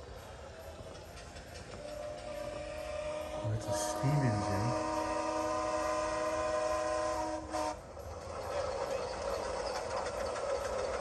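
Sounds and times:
steam engine whistle chord: 1.8s - 7.9s.

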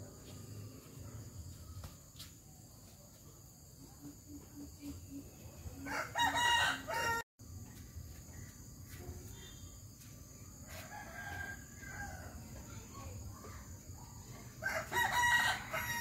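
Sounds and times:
fainter rooster calls: 5.8s - 7.2s
rooster crowing: 5.8s - 7.2s, 10.7s - 12.4s, 14.6s - 16.0s.

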